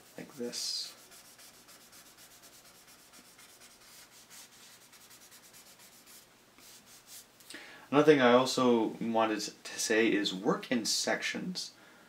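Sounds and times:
pencil shading on paper: 0.0s - 6.2s.

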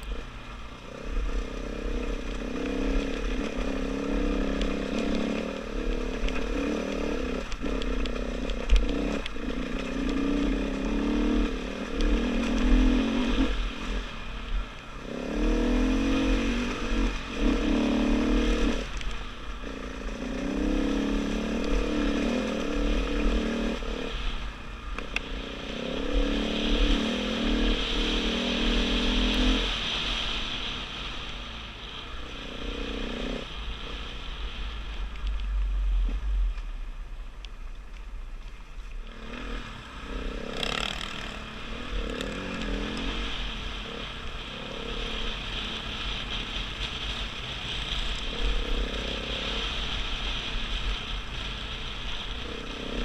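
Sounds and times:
dirt bike engine revving: 0.0s - 14.2s, 15.0s - 24.4s, 25.3s - 31.0s, 39.0s - 53.0s.

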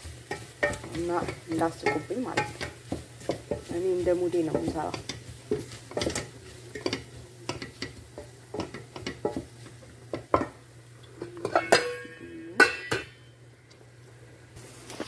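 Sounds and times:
wooden spoon scraping metal pot: 0.0s - 10.5s
metal pot lid clanking: 0.2s - 3.7s, 4.4s - 9.5s, 10.1s - 10.6s, 11.2s - 13.3s.

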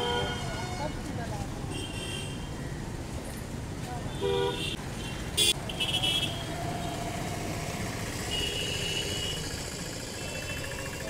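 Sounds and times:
cars and motorcycles passing: 4.8s - 11.0s.

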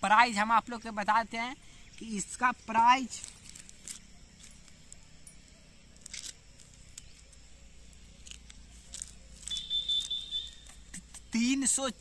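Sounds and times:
paper slip rustling: 8.2s - 11.0s.

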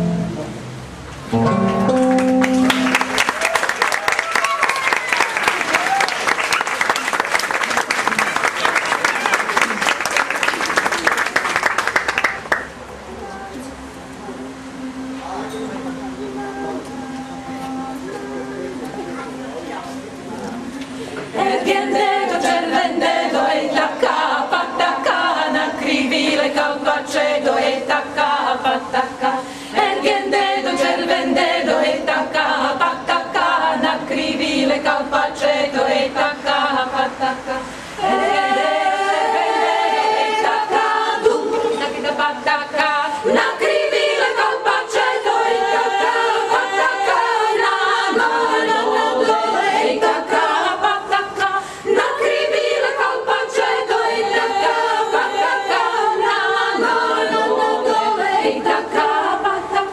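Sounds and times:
women's choir singing a cappella: 20.9s - 59.9s.

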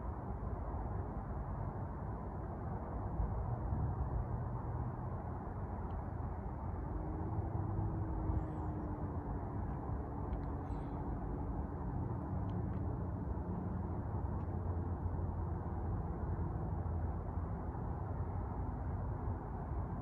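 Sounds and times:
faint engine tone: 6.7s - 15.9s.

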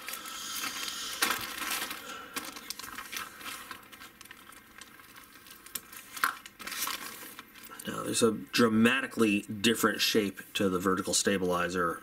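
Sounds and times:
plastic bags crinkling: 0.0s - 8.2s.

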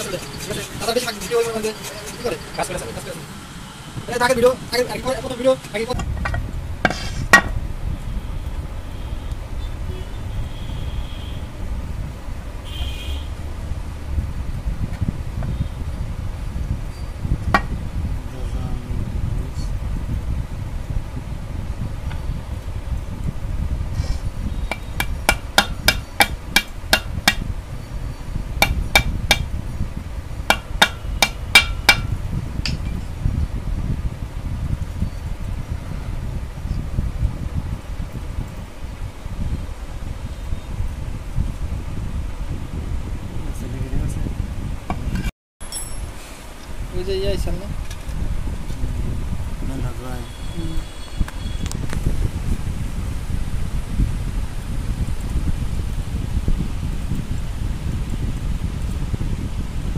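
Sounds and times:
steady low rumble: 0.0s - 40.2s
hammer tapping on metal: 24.7s - 27.4s, 28.6s - 29.5s, 30.5s - 33.0s.

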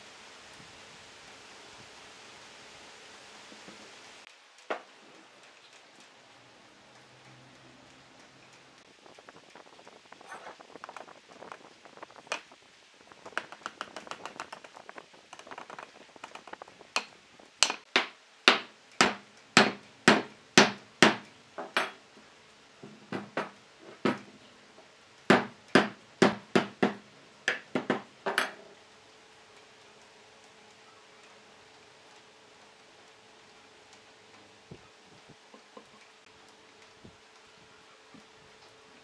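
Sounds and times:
hammer knocking on log: 17.0s - 22.0s, 22.8s - 24.3s, 25.3s - 28.5s.

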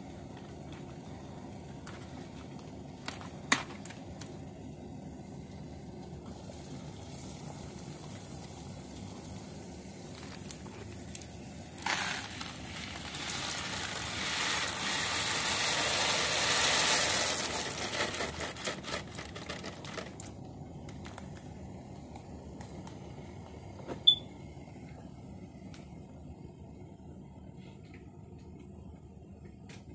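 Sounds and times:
dry pasta pouring into a pot: 6.3s - 20.4s.

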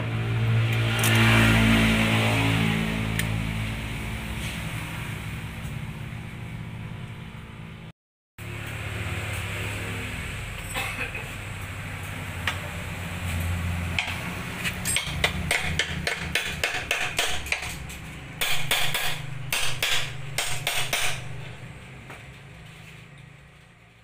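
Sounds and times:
hammer striking metal: 14.0s - 21.6s.

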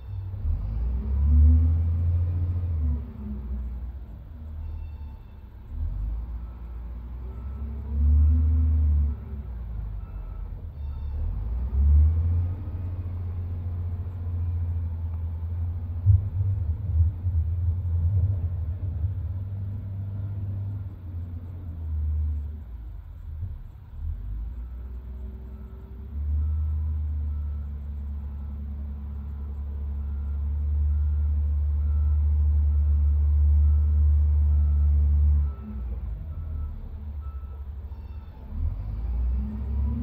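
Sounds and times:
wheel loader diesel engine rumble: 0.0s - 40.0s.

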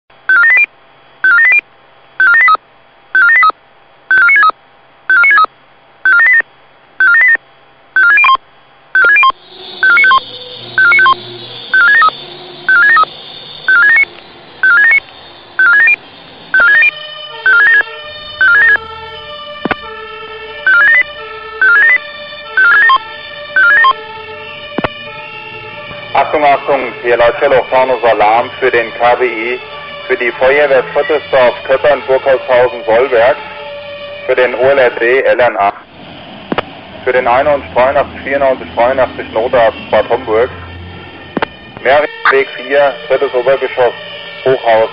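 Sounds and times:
electronic alarm beeps: 0.3s - 1.6s, 2.2s - 2.6s, 3.2s - 7.4s, 8.0s - 8.4s, 9.0s - 18.8s, 20.6s - 24.0s
sustained music-like tones: 9.0s - 34.9s.

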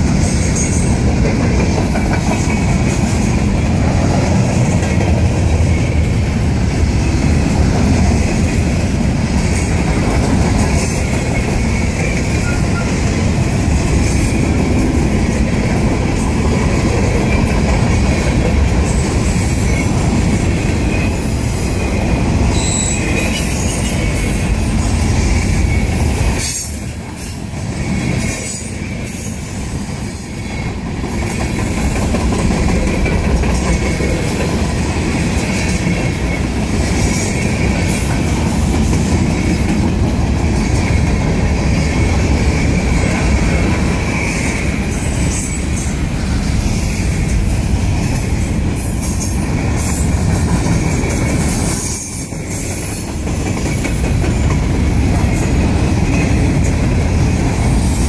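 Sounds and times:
train wheels rumbling on rail: 0.0s - 58.0s
wheel squeal: 10.8s - 13.0s, 22.5s - 24.3s.

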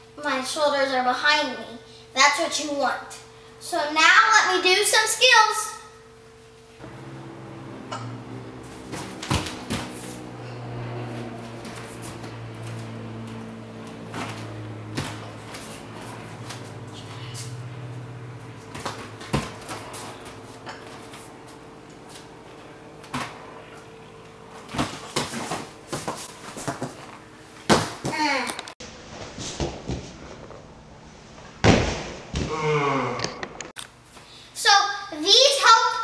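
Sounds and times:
faint steady hum: 0.0s - 28.7s
body thudding onto foam mat: 8.8s - 10.0s.

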